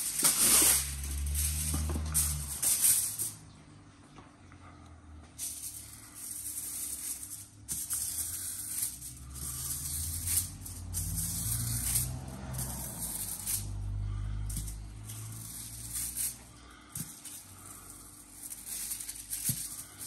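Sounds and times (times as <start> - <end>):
foil rustling and crinkling: 0.0 - 3.2.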